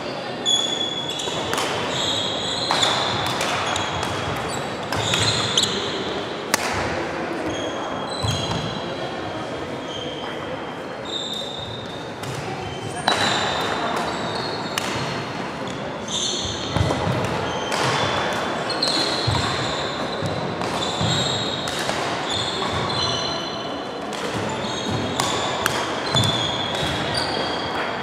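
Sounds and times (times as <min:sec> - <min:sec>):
racket hitting shuttlecock: 0:01.2 - 0:01.9, 0:02.7 - 0:05.8, 0:06.5 - 0:07.0, 0:13.0 - 0:15.2, 0:16.7 - 0:23.0, 0:24.1 - 0:27.2.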